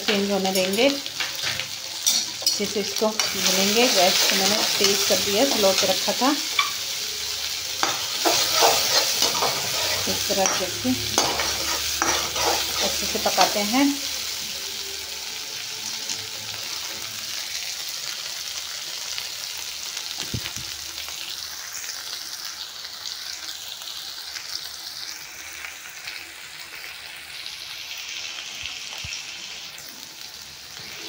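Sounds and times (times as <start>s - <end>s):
onions sizzling in hot oil: 0.0s - 31.0s.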